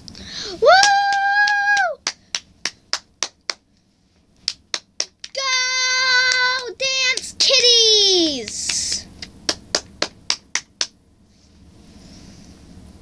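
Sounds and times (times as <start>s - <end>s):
hand claps: 0.7s - 3.6s, 4.4s - 11.0s.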